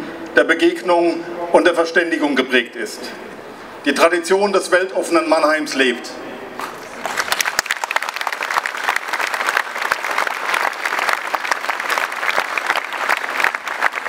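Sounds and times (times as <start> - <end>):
crowd applauding: 6.6 - 14.0.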